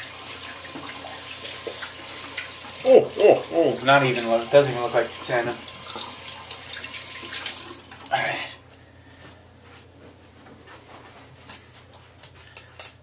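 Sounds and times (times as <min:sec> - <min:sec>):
sink tap running: 0:00.0 - 0:08.2.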